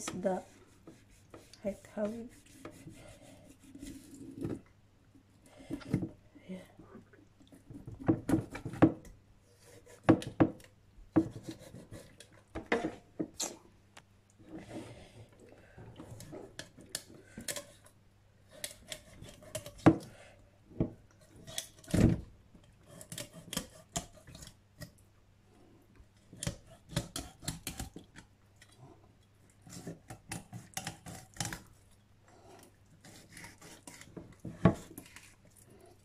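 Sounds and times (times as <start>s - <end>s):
knife scraping fish skin: 18.5s - 19.8s, 22.8s - 24.5s, 26.3s - 28.0s, 29.6s - 31.6s, 33.0s - 35.4s.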